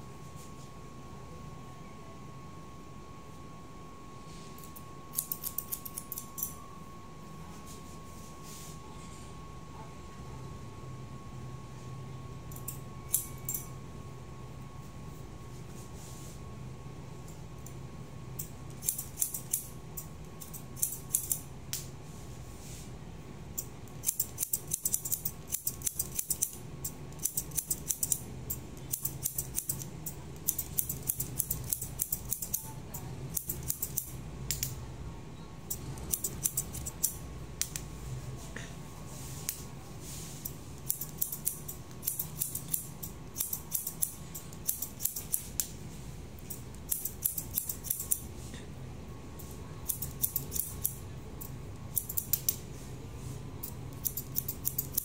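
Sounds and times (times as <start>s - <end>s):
scissors snipping hair: 4.6s - 6.6s, 18.4s - 21.9s, 23.6s - 34.8s, 35.7s - 37.9s, 40.4s - 45.8s, 46.4s - 48.3s, 49.4s - 52.6s, 53.6s - 55.0s.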